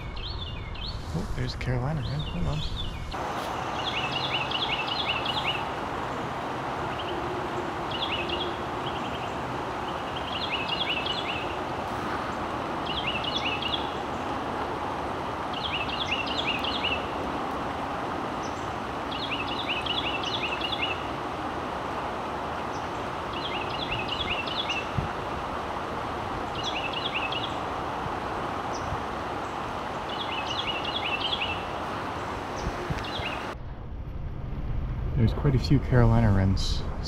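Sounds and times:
steady rushing noise: 0:00.0 - 0:37.0
wren singing ringing notes: 0:02.0 - 0:11.7, 0:12.8 - 0:14.3, 0:15.5 - 0:17.2, 0:18.4 - 0:21.1, 0:22.7 - 0:25.0, 0:26.5 - 0:27.6, 0:30.0 - 0:31.8.

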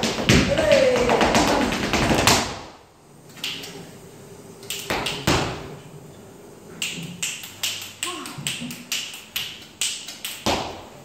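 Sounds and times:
dance shoes stamping on stage floor: 0:00.0 - 0:02.7.

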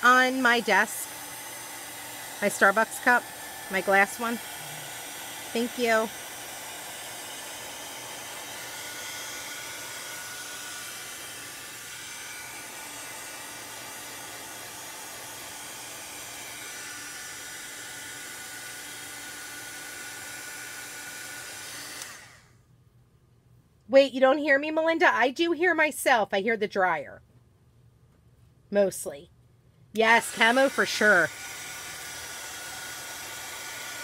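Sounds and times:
craft dryer blowing air: 0:00.0 - 0:22.5, 0:30.0 - 0:34.0.

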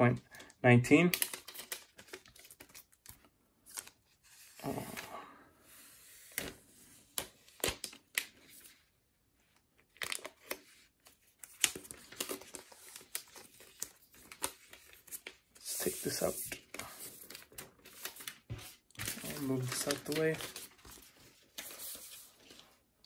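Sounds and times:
plastic wrap crinkling: 0:17.2 - 0:22.7.

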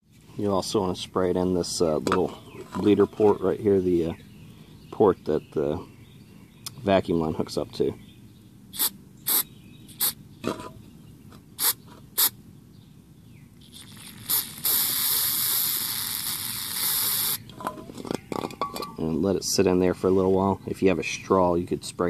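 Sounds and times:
aerosol spraying: 0:13.8 - 0:17.4.

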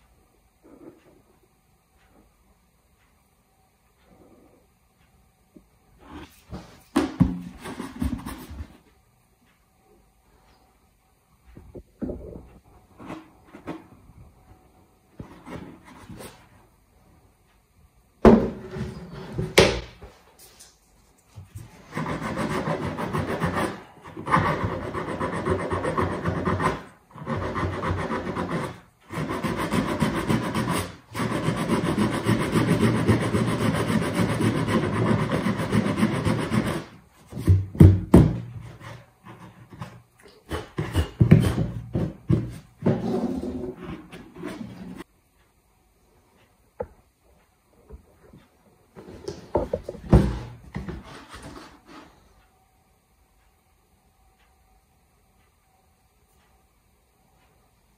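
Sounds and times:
sandpaper rubbing on plastic: 0:21.8 - 0:36.9.

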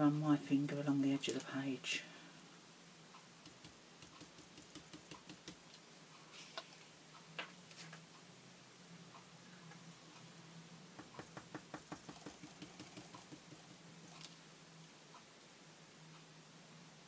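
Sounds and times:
paint brush tapping on stencil: 0:11.0 - 0:13.6.

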